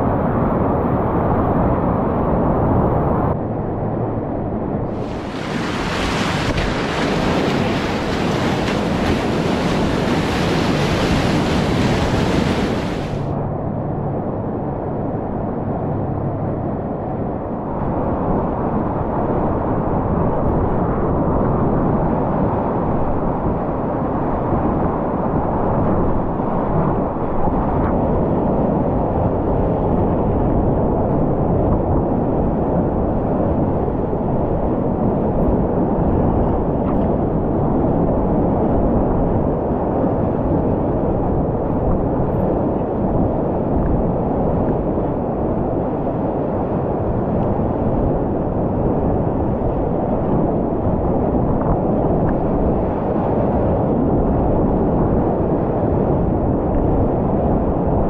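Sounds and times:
river whitewater rushing: 5.0 - 13.2.

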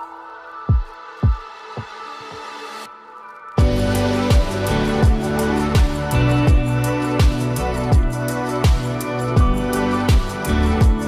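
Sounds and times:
deep kick drum beat: 0.7 - 1.4, 3.6 - 11.0
sustained chords: 3.6 - 11.0.

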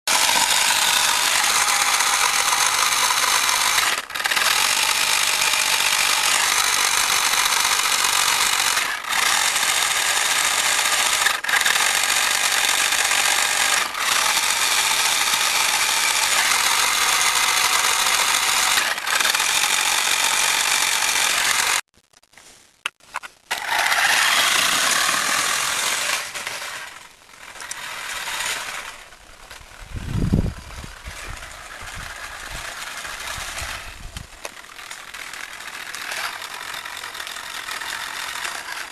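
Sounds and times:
small electric motor whirring: 0.1 - 21.8, 23.5 - 38.9.

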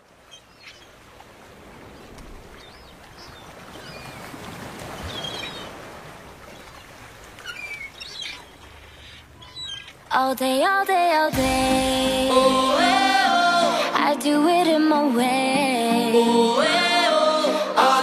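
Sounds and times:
bird chirps and calls: 7.4 - 10.1
ocean surf washing in: 10.9 - 18.0.

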